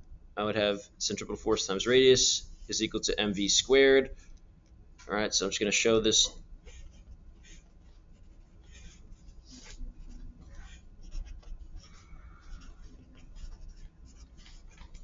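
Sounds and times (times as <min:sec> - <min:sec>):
pencil scratching on paper: 0:06.6 - 0:15.0.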